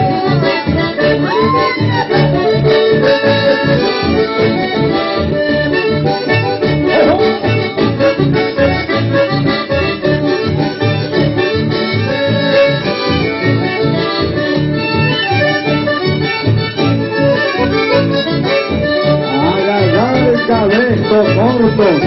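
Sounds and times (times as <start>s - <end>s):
accordion-led band music: 0.0s - 22.0s
steady bass beat: 6.6s - 9.2s.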